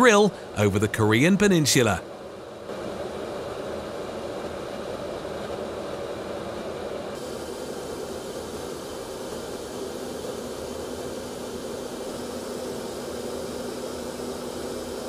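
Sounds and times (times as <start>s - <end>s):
jet aircraft drone: 0.0s - 15.0s
bright hiss: 7.2s - 15.0s.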